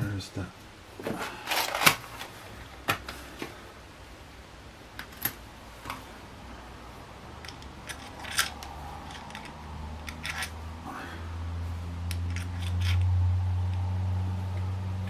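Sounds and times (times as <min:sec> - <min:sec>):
low hum: 0:05.5 - 0:15.0
hex key clicking and scraping: 0:07.4 - 0:10.6, 0:12.1 - 0:13.1.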